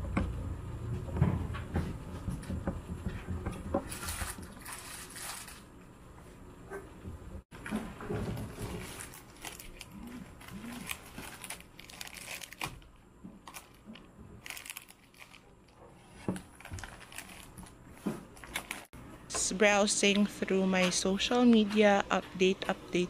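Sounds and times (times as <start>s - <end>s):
plastic wrappers crinkling: 3.8s - 5.7s, 8.4s - 18.9s
wrapper tearing: 3.9s - 5.7s, 8.6s - 15.5s, 16.4s - 17.7s, 18.4s - 18.9s.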